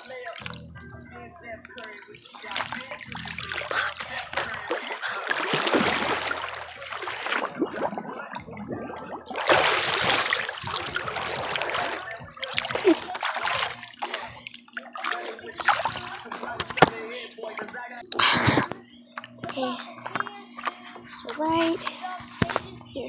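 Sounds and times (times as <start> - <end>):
pool water splashing: 0.0 - 17.0.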